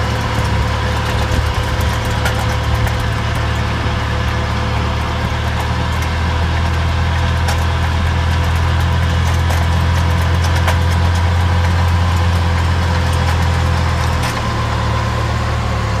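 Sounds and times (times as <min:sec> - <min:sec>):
tractor engine droning under load: 0:00.0 - 0:16.0.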